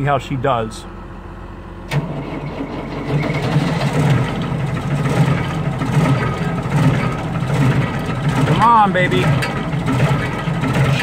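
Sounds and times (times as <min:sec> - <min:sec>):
diesel engine starting and running: 0:00.0 - 0:11.0.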